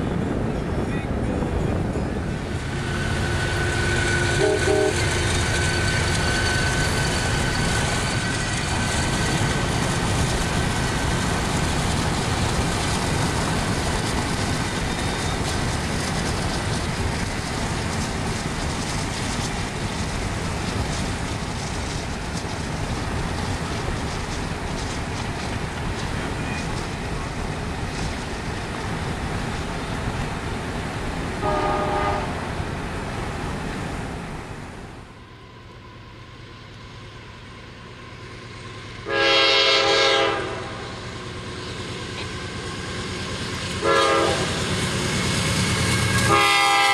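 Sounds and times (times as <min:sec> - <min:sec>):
car road and wind noise: 0:00.0 - 0:04.4
passenger train rumbling past: 0:00.0 - 0:46.9.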